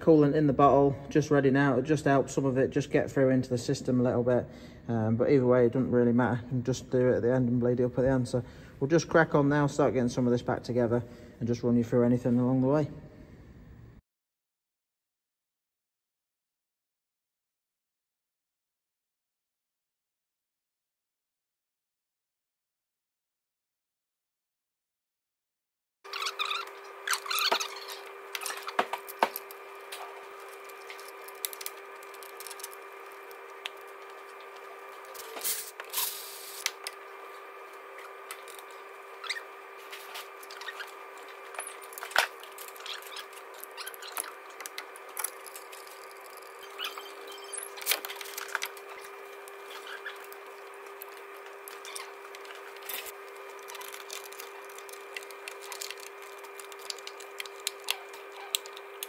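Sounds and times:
steady background hum: 0:00.0 - 0:14.0, 0:26.1 - 0:59.0
tools and metal parts clicking: 0:30.4 - 0:33.4, 0:40.4 - 0:49.1, 0:49.7 - 0:59.0.

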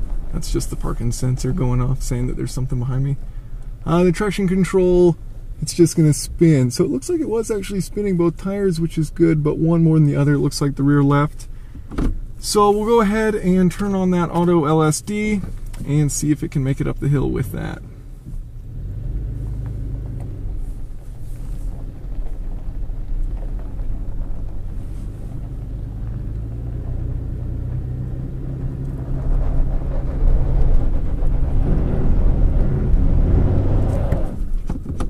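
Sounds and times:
truck engine under load: 0:10.8 - 0:35.0
wheels spinning on dirt: 0:18.4 - 0:34.7.

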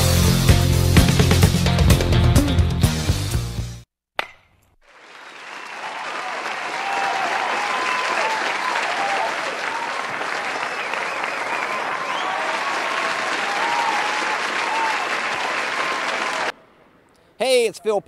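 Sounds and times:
crowd applauding and cheering: 0:04.8 - 0:16.6.

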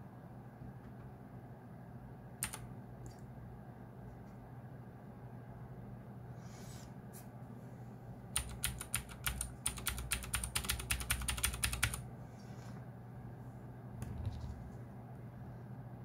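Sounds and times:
mechanical keyboard clicks: 0:02.4 - 0:02.6, 0:08.4 - 0:12.0.

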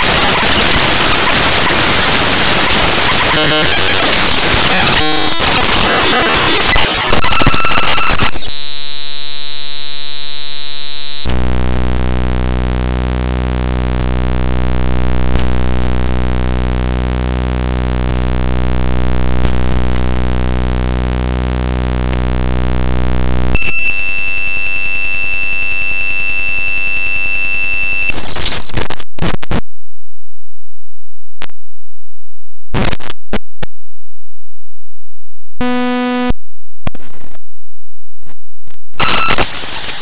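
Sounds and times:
digital crackles: 0:00.0 - 0:24.2, 0:27.9 - 0:29.6, 0:39.0 - 0:40.0.

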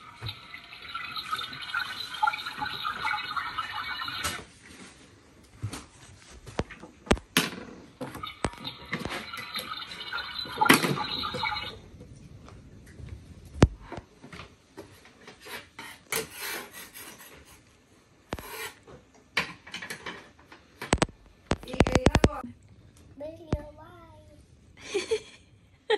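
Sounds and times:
chalk scraping on chalkboard: 0:15.4 - 0:17.6, 0:18.4 - 0:18.8.

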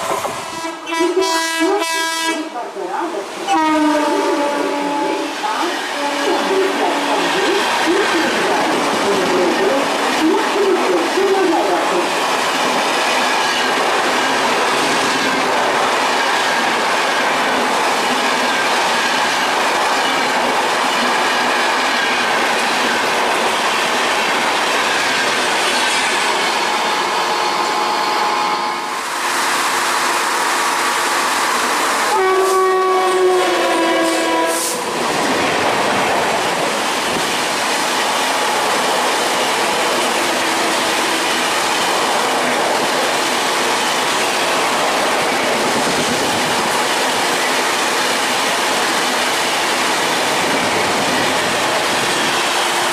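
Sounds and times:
train wheel clatter: 0:00.0 - 0:00.7
locomotive horn: 0:00.4 - 0:02.6, 0:03.5 - 0:07.2, 0:32.0 - 0:34.9.

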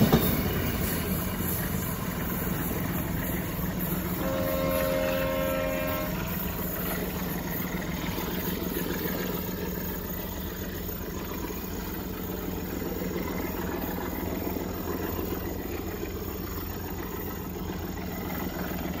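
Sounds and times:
train engine rumble: 0:00.0 - 0:19.0
diesel train horn: 0:04.0 - 0:07.6.

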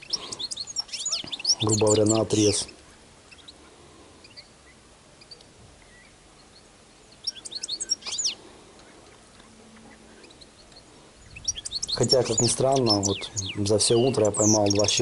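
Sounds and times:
faint outdoor background hiss: 0:00.0 - 0:15.0
finches chirping: 0:00.0 - 0:15.0.

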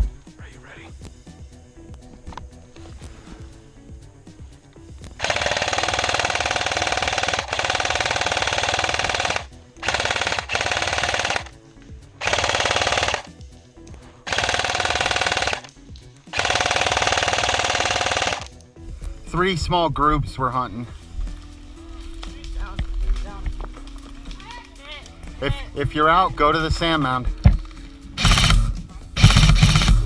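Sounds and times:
airsoft machine gun firing: 0:05.2 - 0:11.5, 0:12.2 - 0:13.3, 0:14.2 - 0:15.7, 0:16.3 - 0:18.5, 0:28.2 - 0:30.0.

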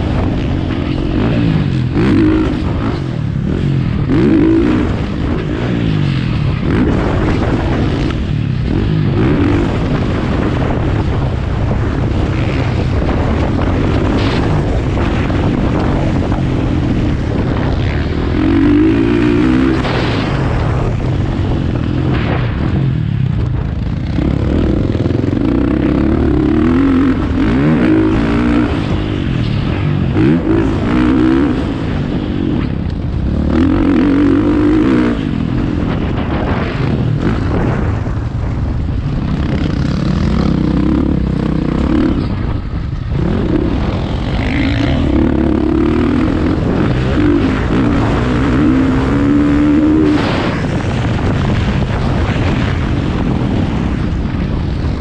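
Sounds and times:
dirt bike engine revving: 0:00.0 - 0:54.1
wind noise: 0:00.0 - 0:55.0.

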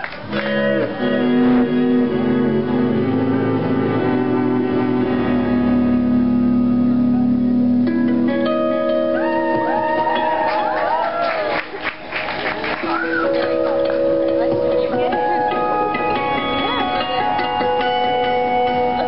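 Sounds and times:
lap steel guitar notes: 0:00.3 - 0:11.5, 0:12.8 - 0:19.0.

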